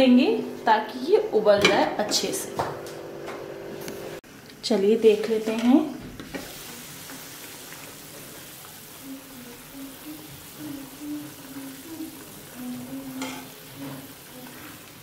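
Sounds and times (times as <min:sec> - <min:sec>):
spatula stirring: 0:05.1 - 0:15.0
water boiling hard: 0:06.0 - 0:15.0.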